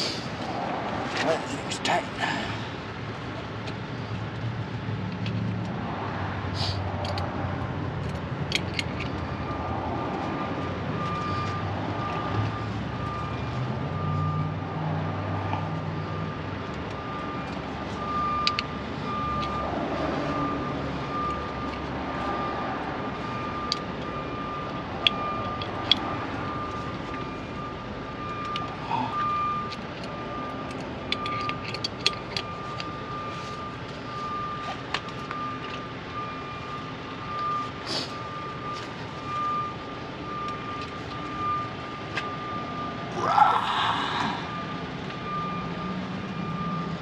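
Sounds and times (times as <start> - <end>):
electronic warning beeps: 9.2 - 14.6, 15.4 - 31.6, 32.4 - 43.0, 44.4 - 47.0.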